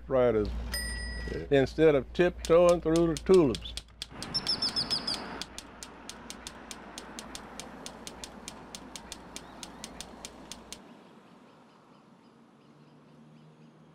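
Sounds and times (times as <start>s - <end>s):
typewriter keys clicking: 2.3s - 10.8s
car passing: 4.1s - 12.2s.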